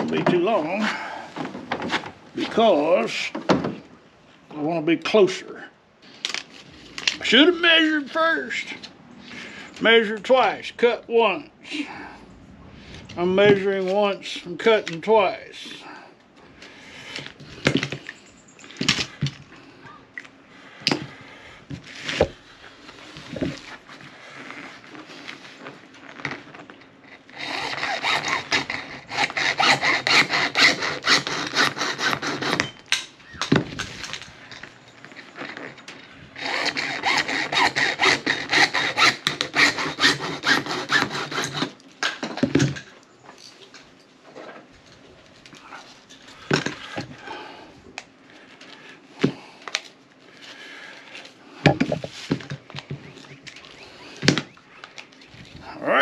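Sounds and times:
hacksaw cutting plastic pipe: 27.2 - 33.1, 36.4 - 42.6.

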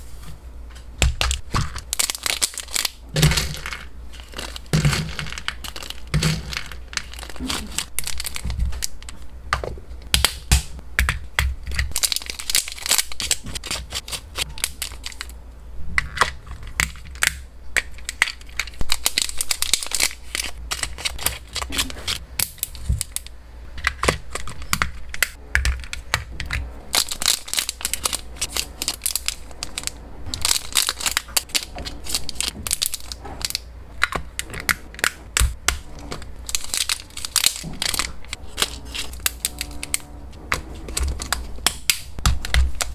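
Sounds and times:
hard treats rattling against plastic: 1.0 - 42.9
plastic bags crinkling: 1.2 - 9.3, 11.9 - 15.4, 18.0 - 23.3, 25.8 - 42.9.

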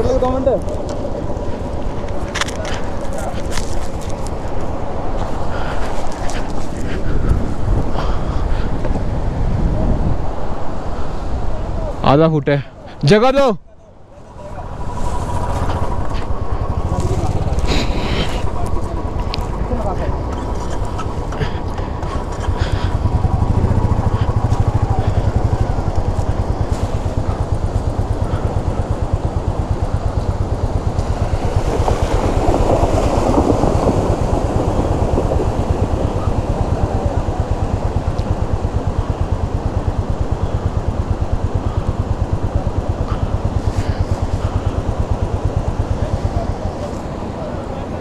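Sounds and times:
wheels splashing through water: 14.6 - 48.0.

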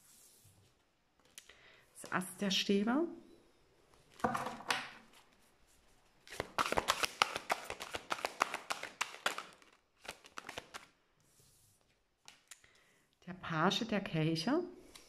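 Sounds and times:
cards being shuffled: 6.2 - 11.0.

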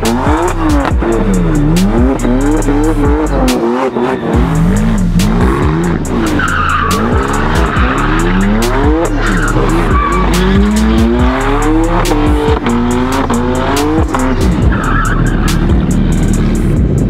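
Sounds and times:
car engine revving: 0.0 - 17.0
music with steady beat: 0.0 - 17.0
tyres squealing: 5.6 - 15.8.

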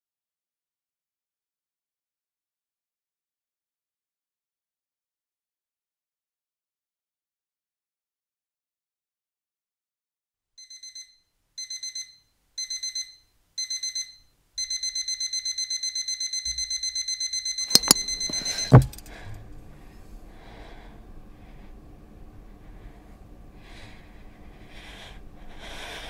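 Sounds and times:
alarm clock beeping: 10.6 - 19.1
faint room noise: 10.7 - 26.0
loud thump: 17.8 - 19.0.

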